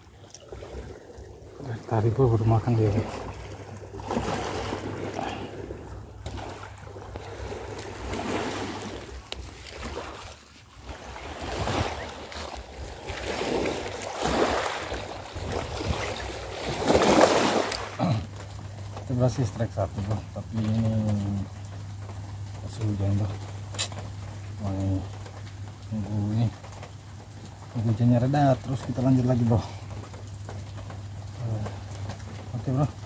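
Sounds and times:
small waves washing onto pebbles: 0.0s - 21.6s.

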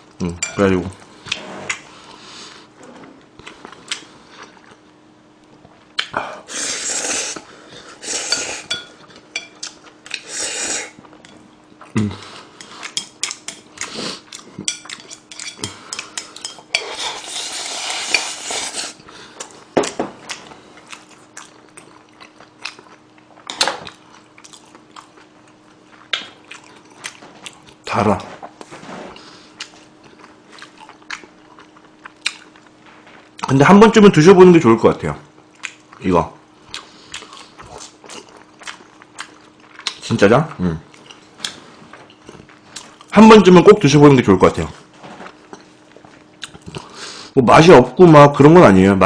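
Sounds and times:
faint steady hum: 0.0s - 49.0s
slurping and chewing: 6.0s - 19.6s, 20.2s - 33.5s, 36.6s - 40.1s, 45.3s - 47.3s.

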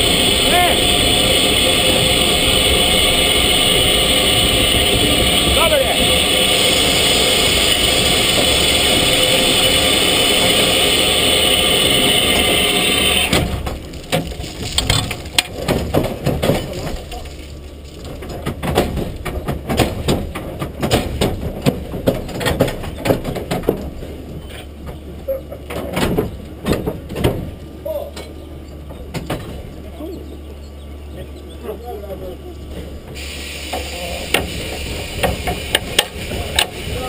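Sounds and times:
steam venting hiss: 0.0s - 13.6s, 33.1s - 37.0s
metal clanks and knocks: 18.0s - 29.8s.

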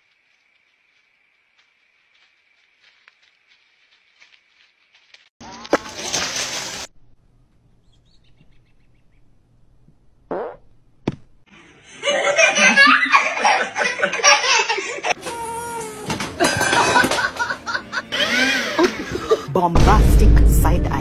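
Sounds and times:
baby laughing: 12.3s - 19.5s.

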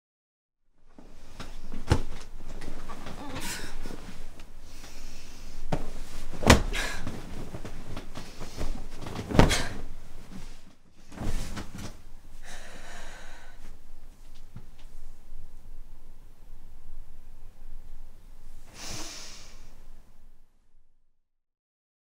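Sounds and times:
bed covers rustling: 0.8s - 17.1s.

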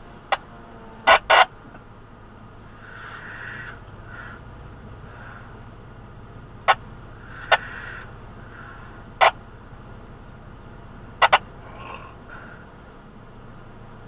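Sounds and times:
low engine rumble: 0.0s - 14.0s.

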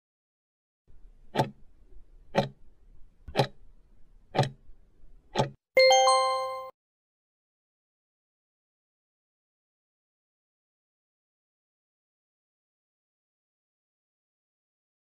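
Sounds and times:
clock ticks: 1.3s - 1.6s, 2.3s - 2.6s, 3.3s - 3.6s, 4.3s - 4.6s, 5.3s - 5.6s
ringing chime: 5.8s - 6.7s.

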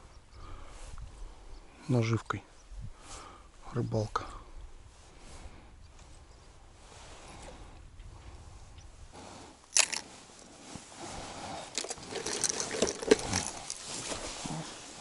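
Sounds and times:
hard lures clattering: 9.7s - 10.1s, 11.7s - 13.9s
plastic trays clicking and rattling: 11.8s - 13.8s.

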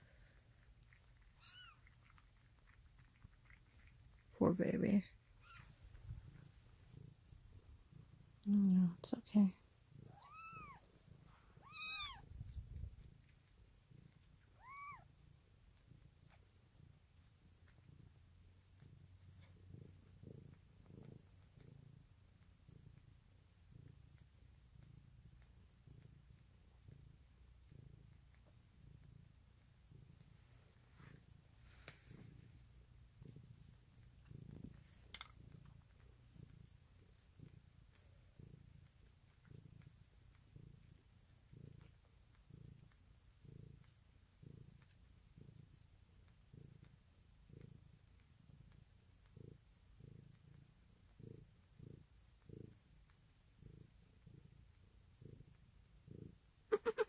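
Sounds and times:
cat purring faintly: 0.0s - 57.0s.

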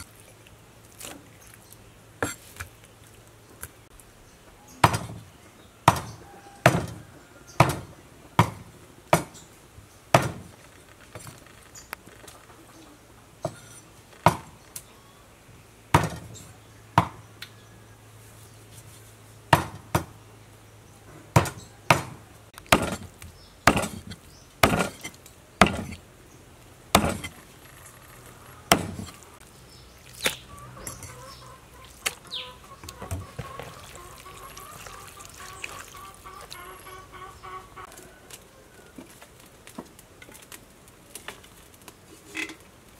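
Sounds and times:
cleaver chopping meat on board: 4.8s - 5.2s, 5.9s - 7.0s, 7.6s - 9.4s, 19.5s - 20.1s, 21.4s - 23.1s, 23.7s - 26.0s, 26.9s - 27.3s, 28.7s - 29.1s.

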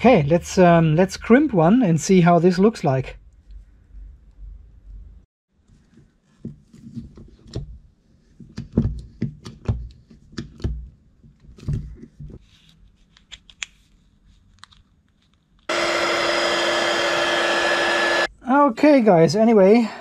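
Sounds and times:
heat gun blowing: 15.7s - 18.3s
whining tones: 15.7s - 18.3s.

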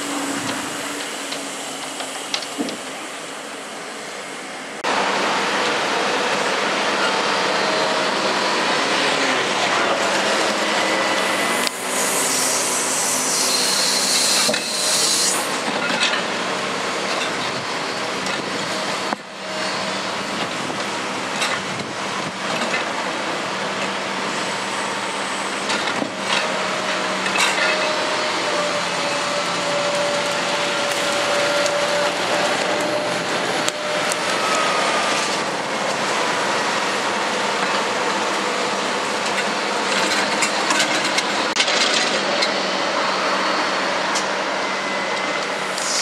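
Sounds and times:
loud hiss: 10.2s - 15.7s, 45.5s - 46.0s.

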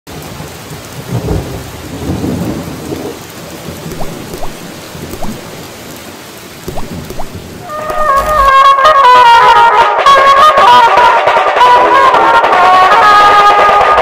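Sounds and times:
steady rain falling: 0.1s - 9.0s.

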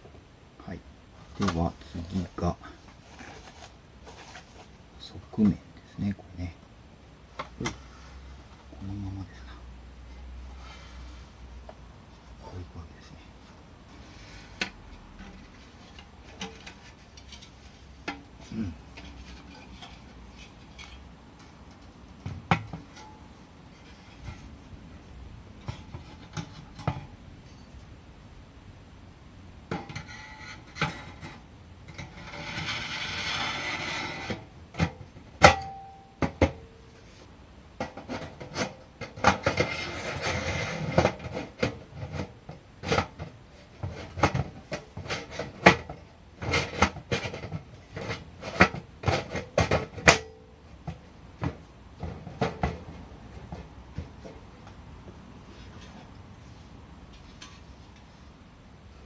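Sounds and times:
metal panels scraping: 14.0s - 21.8s, 29.7s - 35.9s, 37.8s - 50.3s.

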